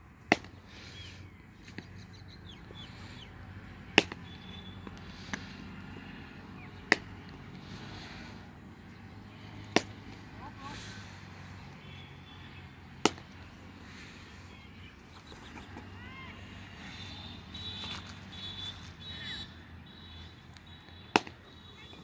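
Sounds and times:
cricket bat striking ball: 3.9s - 4.3s, 6.8s - 7.1s, 9.7s - 10.2s, 13.0s - 13.4s, 21.1s - 21.4s.

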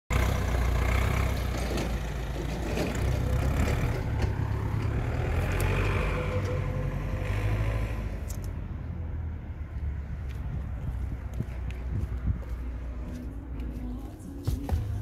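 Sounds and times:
diesel engine idling: 0.1s - 7.1s.

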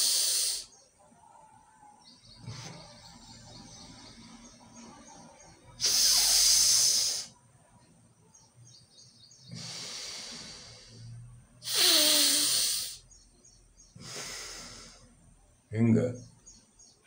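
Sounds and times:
forceful breathing through nostril: 9.4s - 13.0s, 13.9s - 15.2s.

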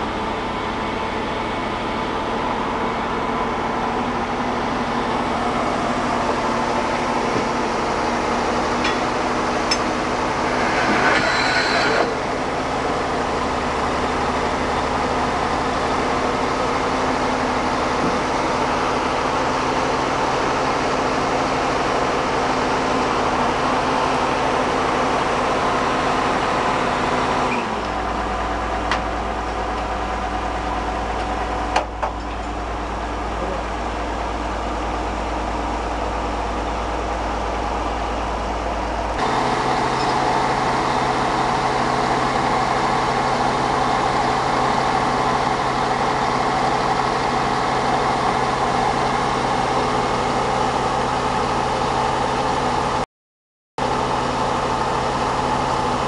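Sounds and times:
drilling rig engine running: 0.0s - 53.0s, 53.8s - 56.0s
sharp metal knocks: 8.8s - 9.9s.

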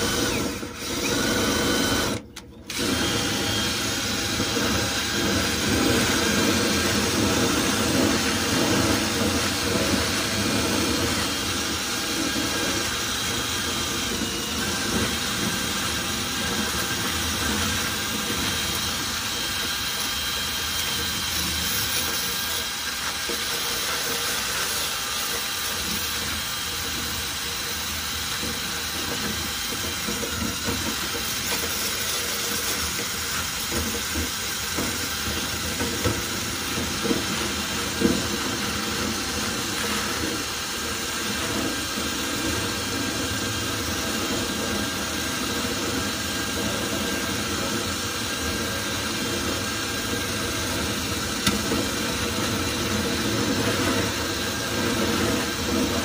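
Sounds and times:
clothes dryer air rushing: 0.0s - 56.0s.

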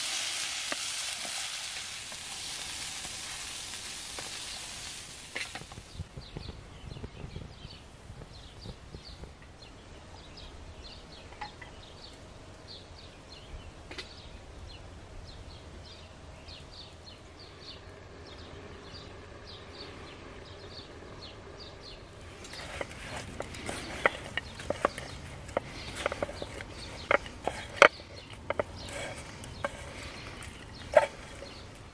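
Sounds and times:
spoon scraping frying pan: 0.0s - 5.8s, 22.3s - 31.7s
small bird chirping: 0.1s - 31.9s.

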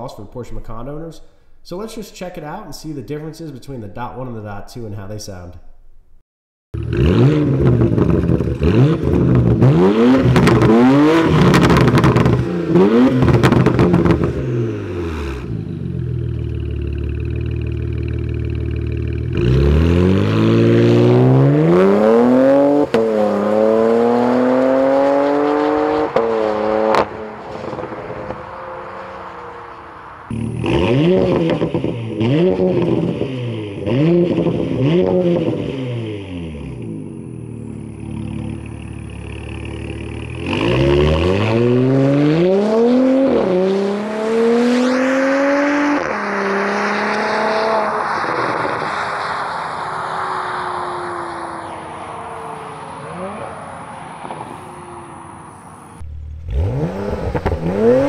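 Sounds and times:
car accelerating through upshifts: 6.8s - 16.7s, 19.2s - 58.0s
car throttle blips: 6.8s - 48.9s, 54.2s - 58.0s
car engine revving: 6.8s - 58.0s.

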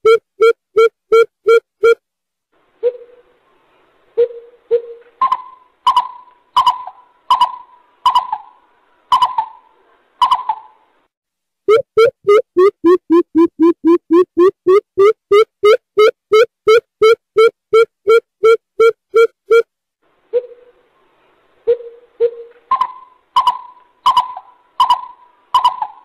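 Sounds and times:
bird hooting calls: 4.2s - 10.8s, 21.7s - 26.0s.

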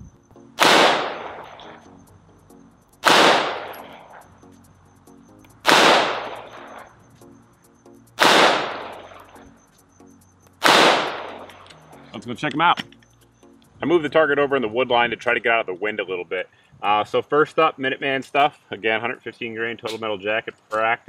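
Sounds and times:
pistol shots: 0.6s - 1.8s, 3.0s - 4.0s, 5.6s - 6.9s, 8.2s - 9.3s, 10.6s - 11.6s.

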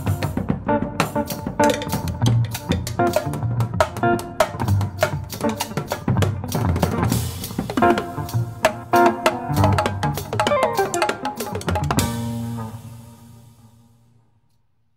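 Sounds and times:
drum kit: 0.0s - 13.8s
small jazz band playing: 0.0s - 13.8s
electric guitar notes: 0.0s - 14.3s
cymbal crash: 12.0s - 14.1s.

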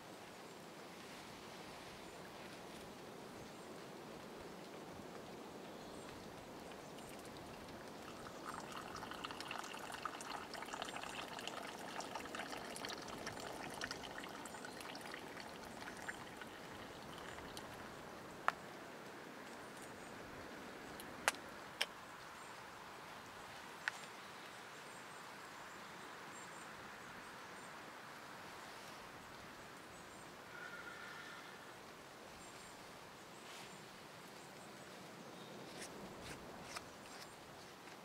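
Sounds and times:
background hiss: 0.0s - 38.0s
coffee pouring into cup: 6.9s - 17.8s.

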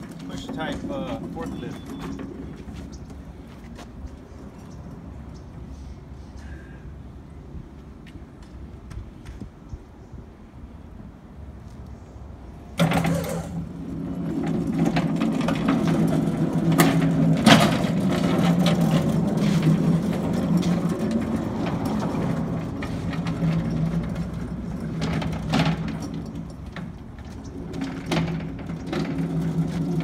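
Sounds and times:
stacker wheels rolling on concrete: 0.0s - 5.6s, 12.5s - 30.0s.

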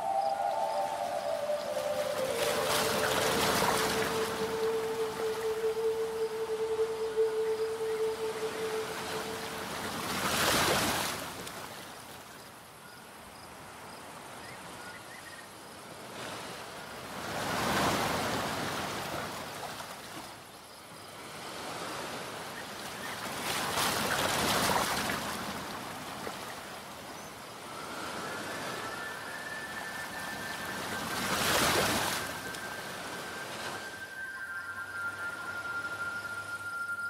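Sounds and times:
waves washing onto shore: 0.0s - 12.3s, 21.2s - 37.0s.

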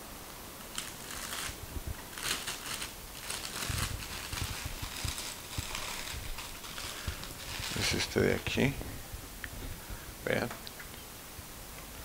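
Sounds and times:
plastic packaging crinkling: 0.6s - 8.9s.

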